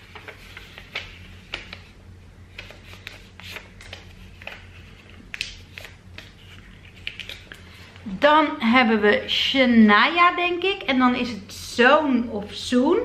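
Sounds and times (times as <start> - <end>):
paper slip crinkling: 2.5 - 7.9.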